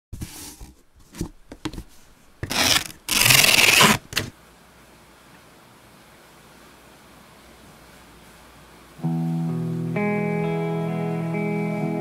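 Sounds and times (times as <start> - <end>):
scratchy rubbing strokes: 1.8 - 4.1.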